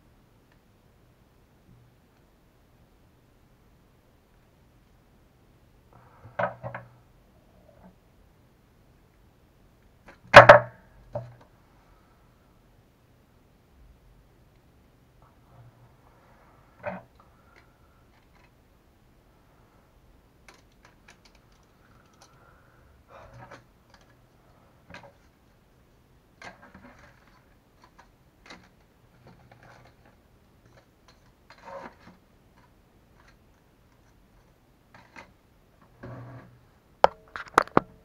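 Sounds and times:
small parts and tools clicking: 0:16.9 - 0:18.6, 0:20.4 - 0:22.5, 0:23.2 - 0:25.3, 0:26.4 - 0:35.4.

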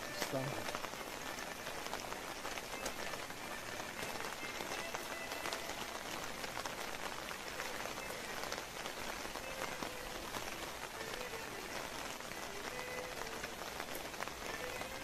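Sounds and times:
rain on wet paving: 0:00.0 - 0:15.0.

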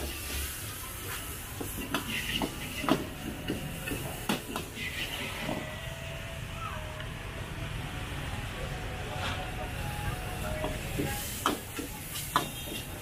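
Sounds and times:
gas burner hiss: 0:00.0 - 0:05.7, 0:09.4 - 0:13.0
steady sizzling: 0:00.0 - 0:05.7.

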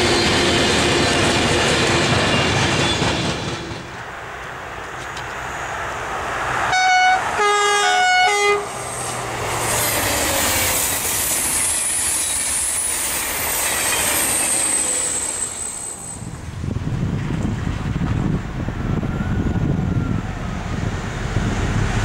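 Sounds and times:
train rushing past: 0:00.0 - 0:22.0
train horn: 0:06.7 - 0:08.8.

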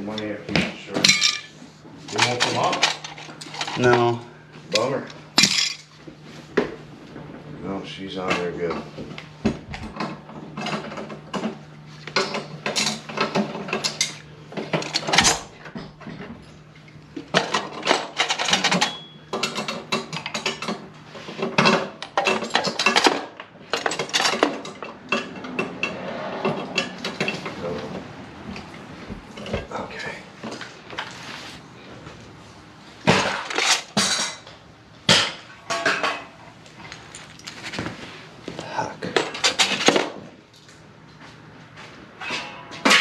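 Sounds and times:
steady low hum: 0:00.0 - 0:43.0
metal tools clanking: 0:00.9 - 0:06.0, 0:09.8 - 0:16.6, 0:17.3 - 0:28.0, 0:33.1 - 0:34.6.

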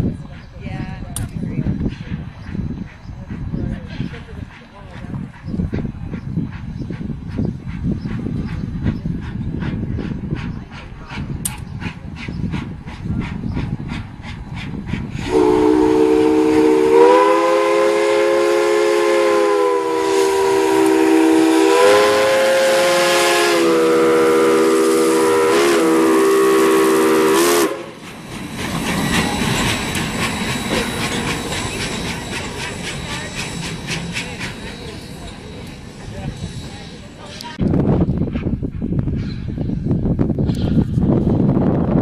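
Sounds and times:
rushing noise of moving train: 0:00.0 - 0:42.0
steam whistle blast: 0:15.2 - 0:28.0.

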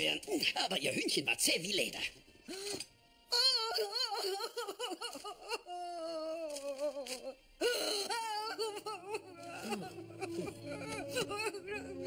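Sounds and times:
woman sobbing and wailing: 0:02.5 - 0:12.0.

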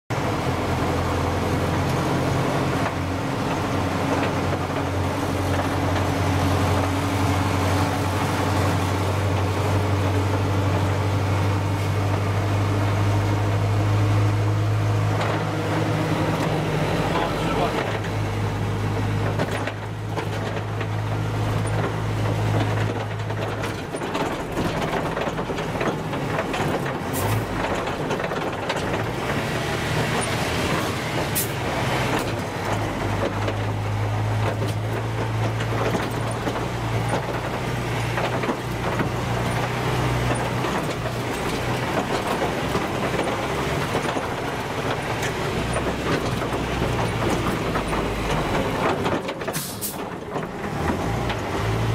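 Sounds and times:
armoured vehicle diesel engine hum: 0:00.1 - 0:51.9
clatter of hull and running gear: 0:00.1 - 0:51.9.

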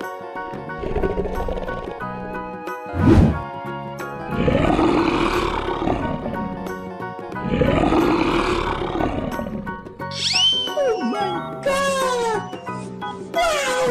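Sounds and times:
background music: 0:00.0 - 0:13.9
lion roaring: 0:00.7 - 0:02.0, 0:04.2 - 0:06.7, 0:07.4 - 0:09.9
short rising whistle: 0:10.2 - 0:11.0.

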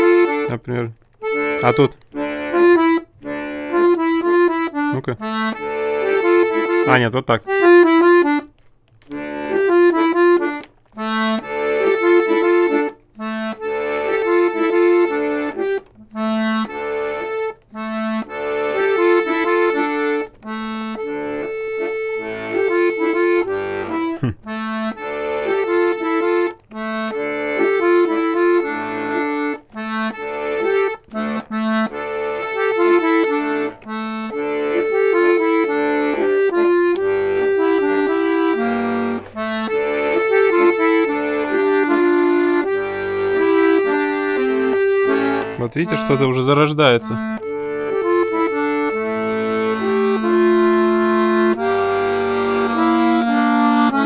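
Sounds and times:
button accordion playing: 0:00.0 - 0:54.0.

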